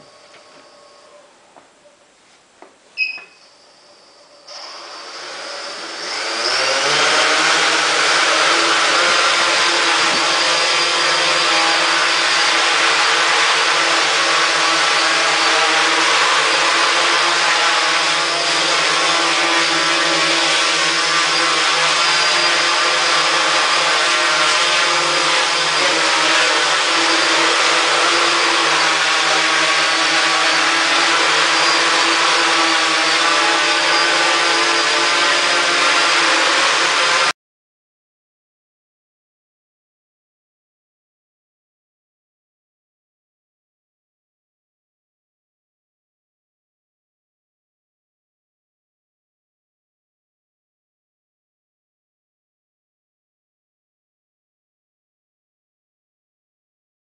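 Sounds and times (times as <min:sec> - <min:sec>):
drone motors buzzing whine: 0:00.0 - 0:01.4
short high beep: 0:03.0 - 0:04.2.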